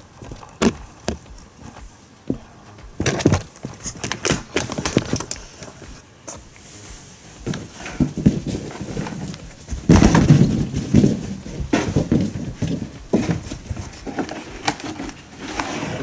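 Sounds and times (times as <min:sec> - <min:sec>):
cardboard box knocks and scuffs: 0:07.4 - 0:16.0.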